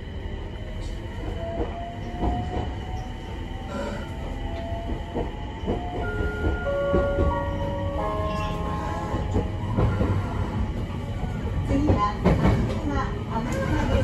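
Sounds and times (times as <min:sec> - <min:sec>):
train wheels rumbling on rail: 0:00.0 - 0:14.0
clacks over rail joints: 0:11.6 - 0:14.0.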